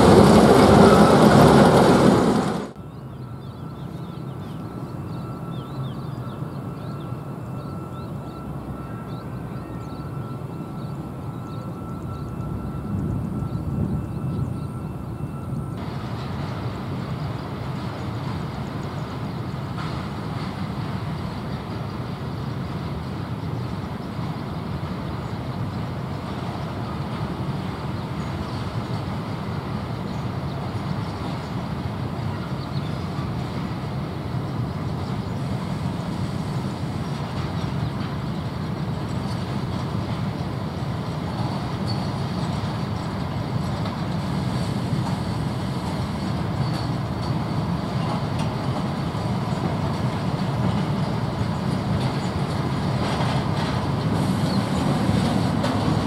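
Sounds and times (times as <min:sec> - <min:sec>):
diesel locomotive engine rumble: 0:00.0 - 0:56.0.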